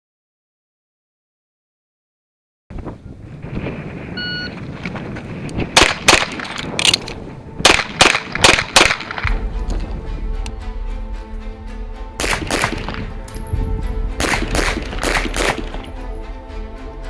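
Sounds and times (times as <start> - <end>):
background music: 5.3 - 17.0
pistol shots: 5.8 - 6.5, 7.6 - 9.4, 12.2 - 13.1, 14.2 - 15.9.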